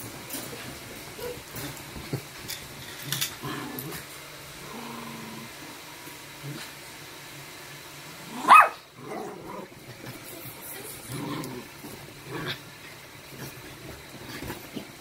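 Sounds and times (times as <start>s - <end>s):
dog growling: 3.0s - 6.8s, 8.2s - 15.0s.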